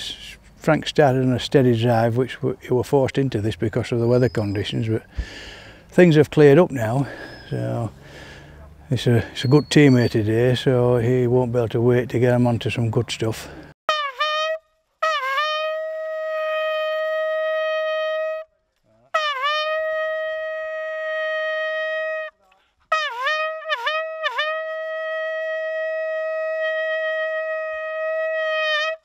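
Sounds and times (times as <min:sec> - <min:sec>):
hunting horn notes: 0:13.9 - 0:18.5, 0:19.1 - 0:29.0.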